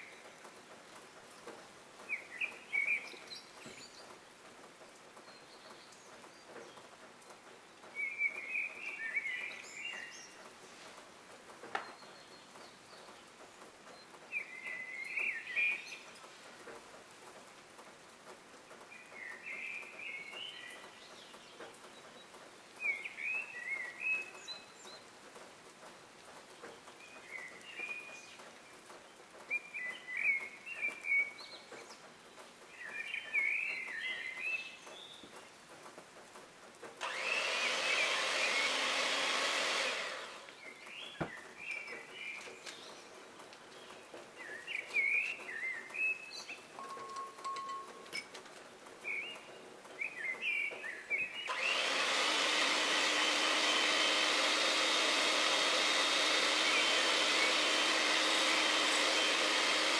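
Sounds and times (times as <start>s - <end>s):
bird chirping: 0.0s - 4.5s, 5.1s - 16.3s, 18.9s - 25.2s, 26.4s - 35.6s, 39.9s - 51.8s
faint steady hiss: 0.0s - 59.9s
electric hand mixer whisking: 37.0s - 40.5s, 51.5s - 59.9s.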